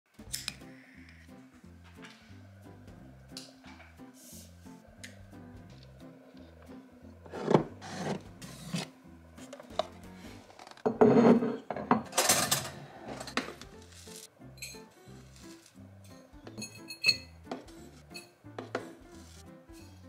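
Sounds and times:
soft background music: 0.1 - 20.0
dry oats rustling and scraping: 13.0 - 14.3, 15.0 - 15.9, 18.7 - 19.5.

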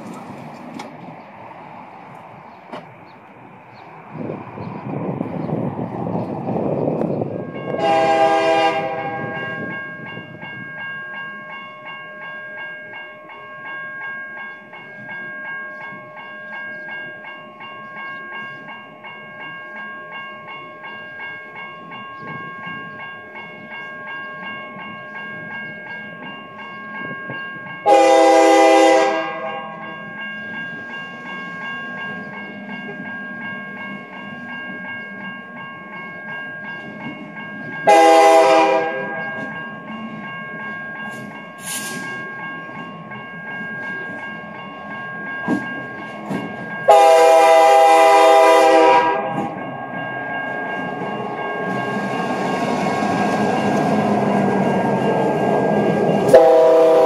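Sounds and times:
crossing warning bells ringing: 0.0 - 57.0
locomotive horn blasts: 7.7 - 9.4, 27.8 - 29.7, 37.9 - 39.2, 46.9 - 49.6, 56.3 - 57.0.

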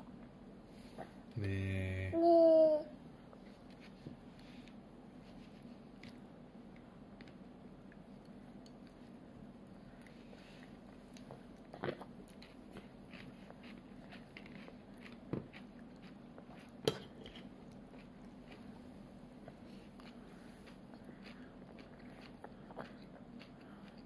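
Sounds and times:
low steady hum: 0.0 - 24.0
child chewing crisp food: 3.2 - 24.0
cutlery clicking on plate: 16.8 - 17.5.

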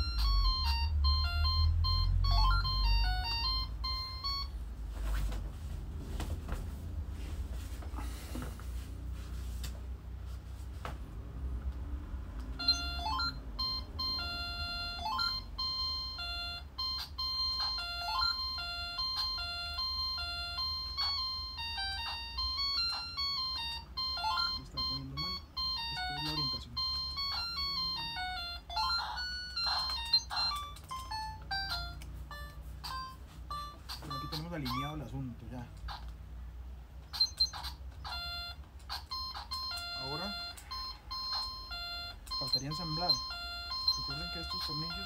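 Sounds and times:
electronic beeping melody: 0.0 - 4.8, 12.6 - 35.6, 37.1 - 45.0.

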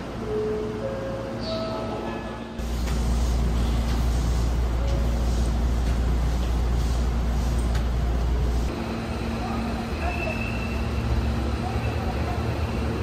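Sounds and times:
electric train rumbling: 0.0 - 13.0.

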